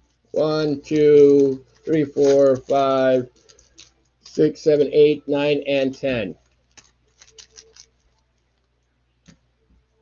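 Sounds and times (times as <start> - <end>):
trading cards clicking: 0.8 - 4.4, 6.7 - 8.0.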